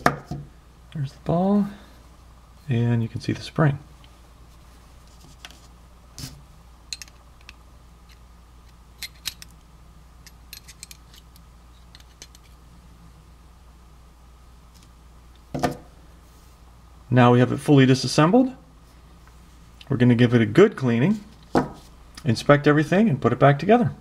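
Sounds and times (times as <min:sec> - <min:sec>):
small steel parts set down: 0:06.9 - 0:07.2, 0:09.0 - 0:09.5, 0:10.2 - 0:11.3.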